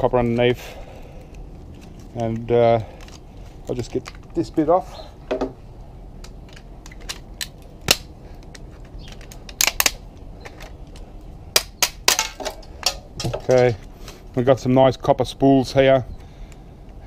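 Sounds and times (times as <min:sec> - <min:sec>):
plastic parts clicking and snapping: 0:01.2 - 0:04.6, 0:06.2 - 0:13.7.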